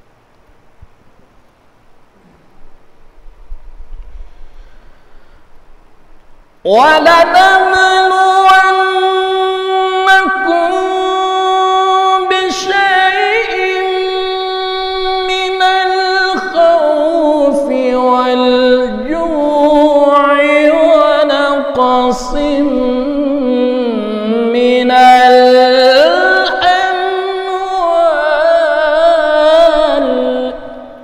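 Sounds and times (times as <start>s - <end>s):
man reciting melodically: 6.6s - 31.0s.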